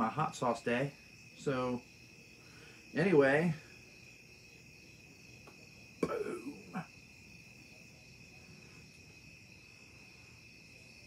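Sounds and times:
crickets chirping: 0:00.0 - 0:11.0
man short vocal sound: 0:06.0 - 0:06.9.

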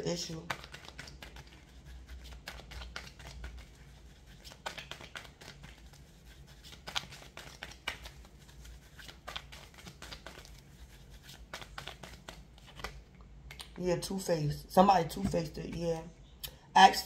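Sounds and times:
faint low hum: 0:00.0 - 0:17.0
cards being shuffled: 0:00.2 - 0:13.7.

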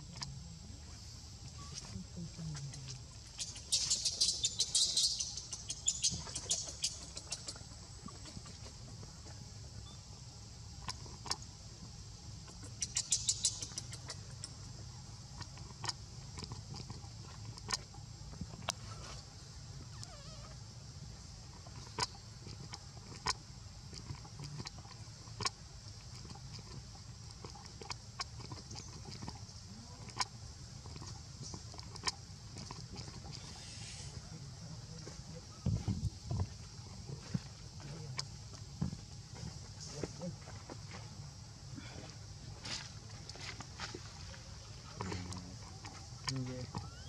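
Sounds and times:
steady high hiss: 0:33.4 - 0:47.0.

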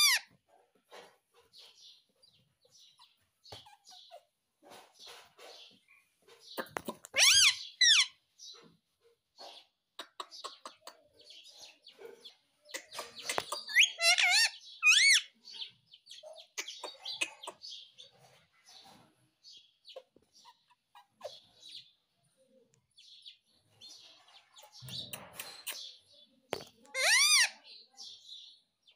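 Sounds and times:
parakeet chattering: 0:00.0 - 0:00.2, 0:06.4 - 0:08.2, 0:12.7 - 0:18.0, 0:26.9 - 0:27.6
parakeet warbling calls: 0:00.0 - 0:00.2, 0:07.1 - 0:08.2, 0:13.3 - 0:15.3, 0:27.0 - 0:27.6.

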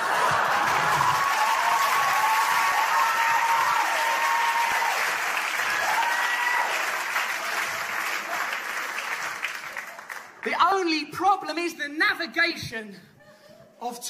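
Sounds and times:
audience applauding and cheering: 0:00.0 - 0:10.6.

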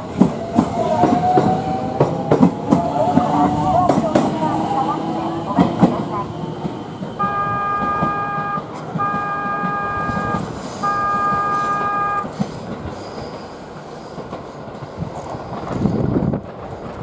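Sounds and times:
train wheels rumbling on rails: 0:00.0 - 0:17.0
train horn blasts: 0:07.2 - 0:12.3.

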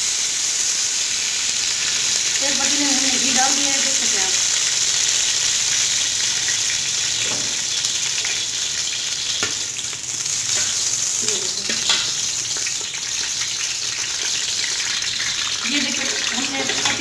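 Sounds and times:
fat sizzling in a pot: 0:00.0 - 0:17.0.

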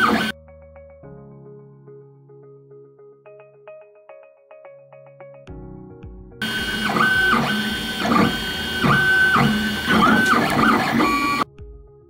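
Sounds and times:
stepper motors whining: 0:00.0 - 0:00.3, 0:06.4 - 0:11.5.

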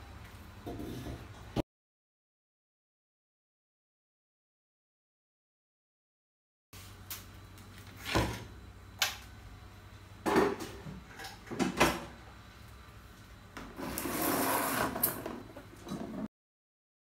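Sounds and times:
egg box scraping along shelf: 0:13.7 - 0:15.5.

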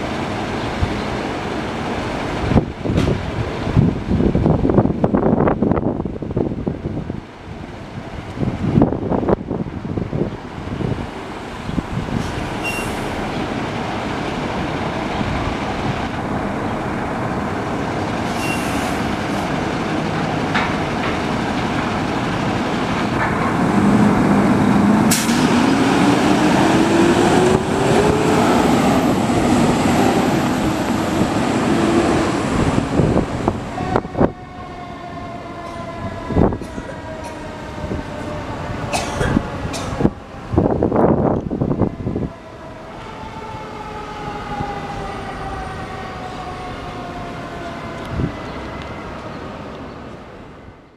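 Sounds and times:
fire engine diesel engine: 0:07.2 - 0:34.5.

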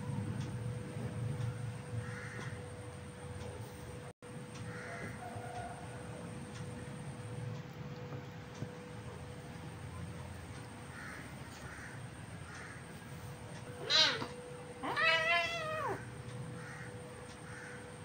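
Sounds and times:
kitten meowing: 0:13.8 - 0:16.0.

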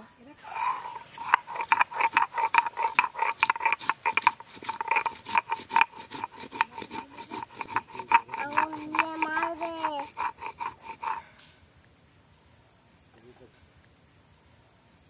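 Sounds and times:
drawn-out pitched call: 0:00.0 - 0:11.3
stone roller crushing spices: 0:00.4 - 0:11.3.

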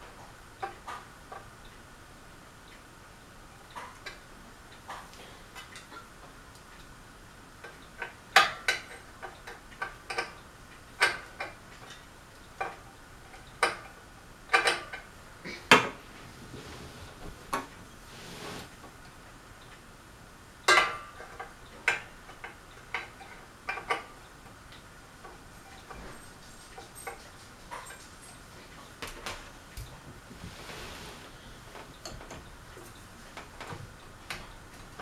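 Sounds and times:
metal fan parts clinking: 0:25.3 - 0:29.8, 0:31.7 - 0:35.0.

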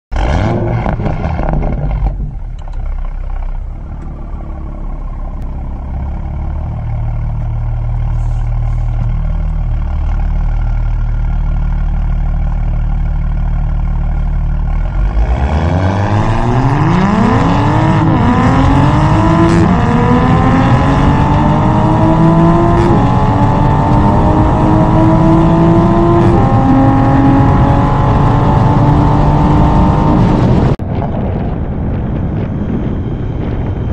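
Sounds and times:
car engine accelerating through gears: 0:00.1 - 0:10.6, 0:14.6 - 0:30.8.

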